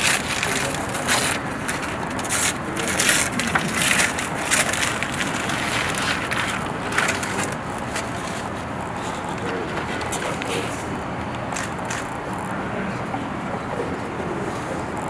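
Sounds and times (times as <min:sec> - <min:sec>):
wrapping paper crinkling and tearing: 0:00.0 - 0:08.7.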